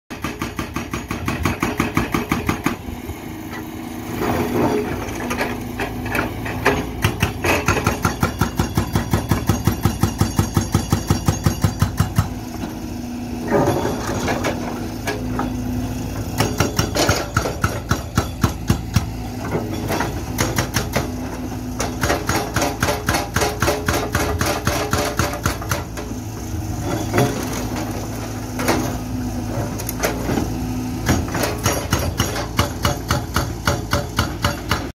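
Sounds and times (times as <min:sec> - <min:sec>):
hydraulic breaker hammering: 0:00.1 - 0:02.8, 0:05.4 - 0:12.4, 0:16.2 - 0:26.2, 0:29.8 - 0:34.9
diesel engine running: 0:01.1 - 0:10.0, 0:11.4 - 0:34.9.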